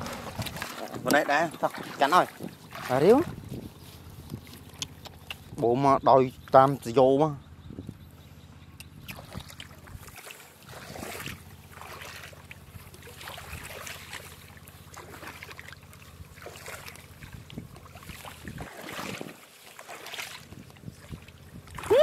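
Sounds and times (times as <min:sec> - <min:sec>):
small water splashes: 0:00.0 - 0:05.6, 0:08.8 - 0:22.0
wind rumbling on microphone: 0:00.0 - 0:06.7, 0:07.4 - 0:08.2, 0:08.8 - 0:11.5, 0:17.1 - 0:19.4, 0:20.4 - 0:22.0.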